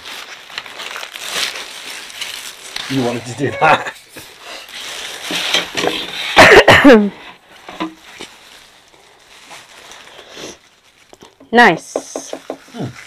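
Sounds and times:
plastic wrap crinkling: 0:00.0 - 0:11.7, 0:12.3 - 0:13.0
loud cough: 0:03.5 - 0:04.0, 0:06.3 - 0:07.1.

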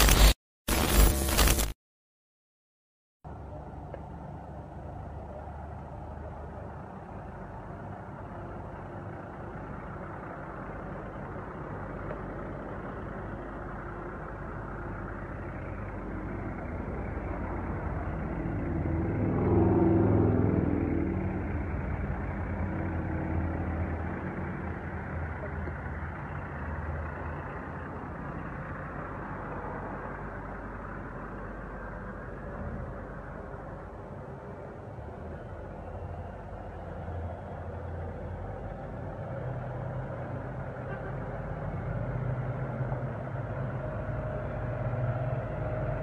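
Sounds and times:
diesel truck passing slowly: 0:03.3 - 0:46.0.

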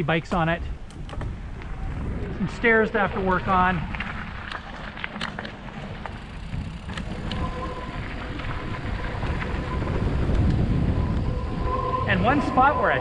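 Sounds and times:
bike tyres rumbling on dirt: 0:00.0 - 0:13.0
bike clicks and rattles: 0:00.1 - 0:02.4, 0:03.2 - 0:11.3
wind on microphone: 0:00.6 - 0:04.8, 0:06.3 - 0:13.0
faint steady whine: 0:06.1 - 0:13.0.

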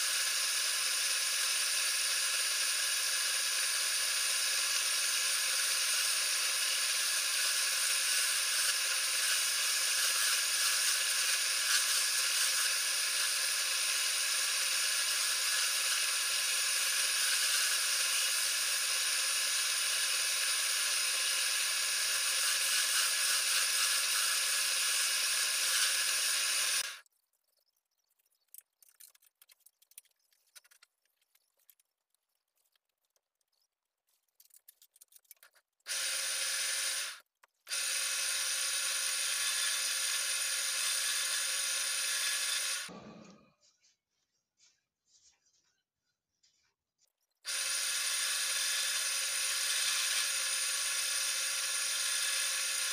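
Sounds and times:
wood lathe whining: 0:00.0 - 0:27.0, 0:35.9 - 0:43.3, 0:47.5 - 0:52.9
faint clicks and taps: 0:27.0 - 0:35.8.

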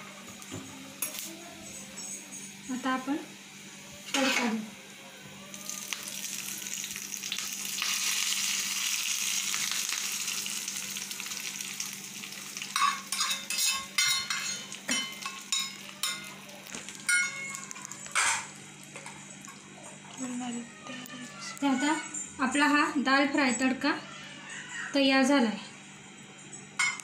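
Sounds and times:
hot oil sizzling: 0:00.0 - 0:20.4.

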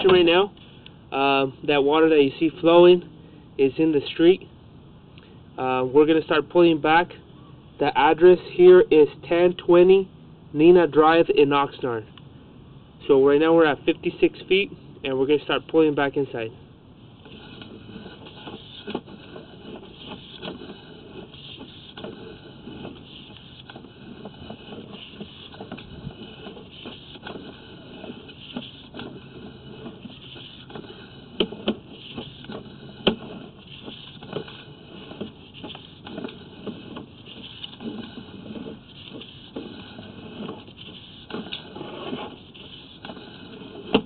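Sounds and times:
camera cable scraping in pipe: 0:17.2 - 0:44.0.

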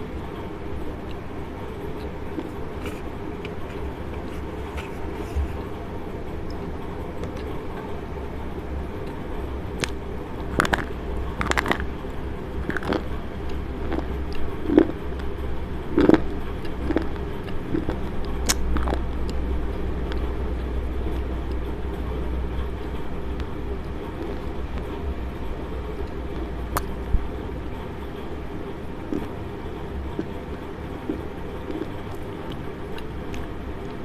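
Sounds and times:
chewing: 0:01.8 - 0:05.7, 0:09.8 - 0:11.9, 0:12.6 - 0:15.3, 0:15.9 - 0:19.4, 0:29.1 - 0:29.4, 0:31.0 - 0:34.0
slate pencil crunching: 0:02.4 - 0:05.4.

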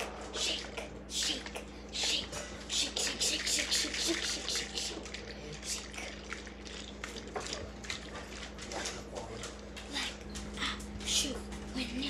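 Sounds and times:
liquid sloshing in plastic cups: 0:00.4 - 0:09.9.

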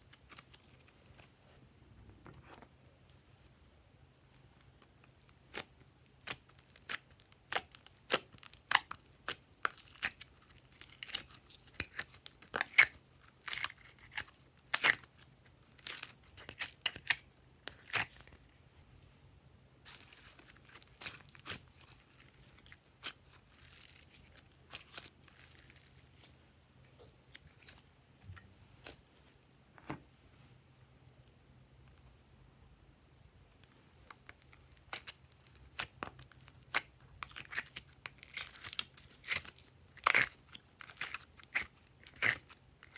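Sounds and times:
slime crackling and popping: 0:05.2 - 0:15.2, 0:19.9 - 0:26.2, 0:34.2 - 0:42.9
slime squishing: 0:19.9 - 0:27.9, 0:34.2 - 0:42.9.

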